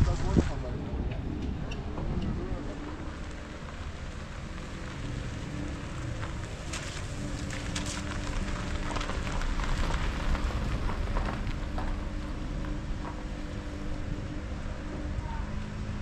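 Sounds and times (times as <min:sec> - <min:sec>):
rushing outdoor noise: 0:00.0 - 0:16.0
footsteps crunching on gravel: 0:02.9 - 0:13.3.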